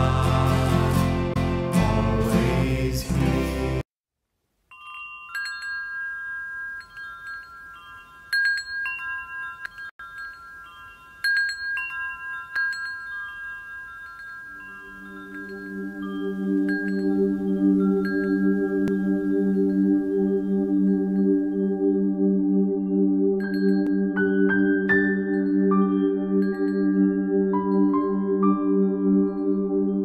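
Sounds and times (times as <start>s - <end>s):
music: 0.0s - 3.8s, 15.2s - 30.0s
metal wind chime ringing: 4.7s - 21.9s, 23.4s - 23.9s.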